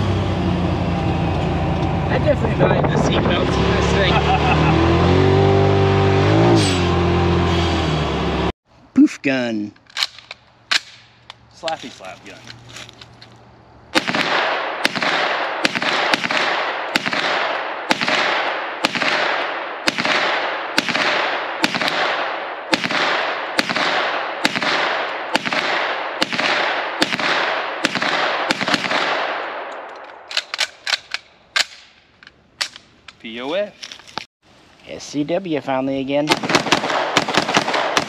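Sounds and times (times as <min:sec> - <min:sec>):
gunshots with long echo: 0:13.9 - 0:32.0, 0:36.3 - 0:38.0
sharp clicks and knocks: 0:29.7 - 0:33.2.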